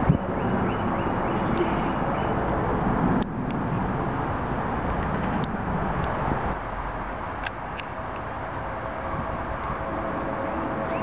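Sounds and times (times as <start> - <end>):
jet airliner passing overhead: 0.0 - 11.0.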